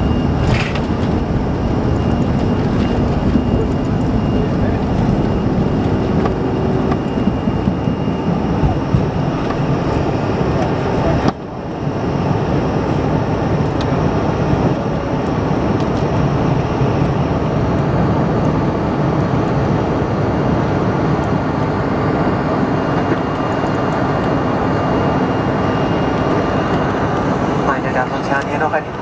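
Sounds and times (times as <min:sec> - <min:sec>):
faint high whine: 0:00.0 - 0:17.3
jet engines roaring in cabin: 0:00.0 - 0:29.0.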